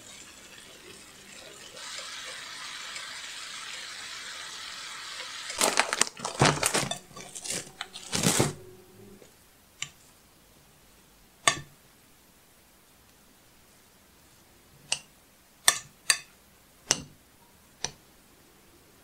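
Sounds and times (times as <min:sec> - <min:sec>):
frying pan hissing: 0:00.0 - 0:05.6
plastic bag crinkling: 0:05.4 - 0:08.6.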